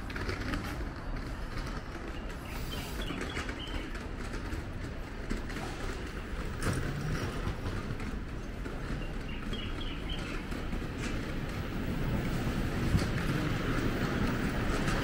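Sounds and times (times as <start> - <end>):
low hum of traffic: 0.0 - 15.0
small birds chirping: 8.9 - 10.6.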